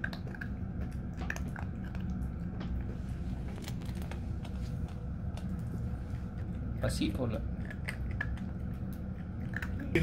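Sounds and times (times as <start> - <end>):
teeth clicks: 0.0 - 2.2
puppy chewing on hand: 0.0 - 6.8, 7.4 - 10.0.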